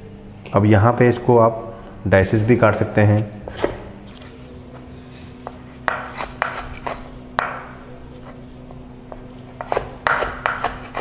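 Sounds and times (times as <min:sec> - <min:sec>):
faint hum: 0:00.0 - 0:11.0
knife chopping on wooden board: 0:05.4 - 0:07.8, 0:09.1 - 0:11.0.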